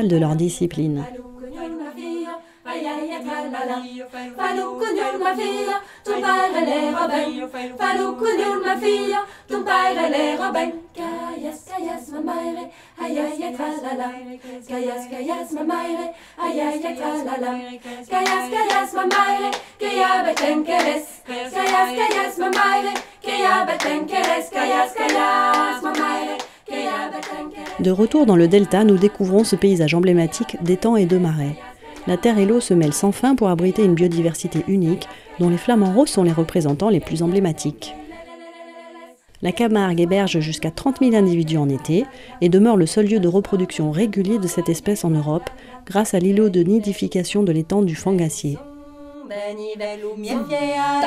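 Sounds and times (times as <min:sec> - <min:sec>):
choir singing a cappella: 0:00.7 - 0:51.0
rhythmic hand claps: 0:18.1 - 0:28.2, 0:30.3 - 0:37.3.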